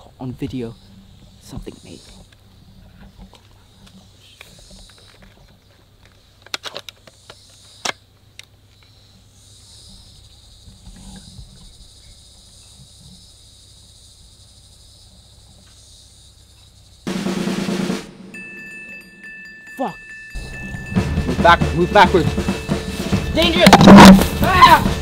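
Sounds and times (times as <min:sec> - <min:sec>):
insects buzzing: 0:00.0 - 0:18.1, 0:19.8 - 0:25.0
drum roll: 0:17.1 - 0:18.4, 0:20.4 - 0:25.0.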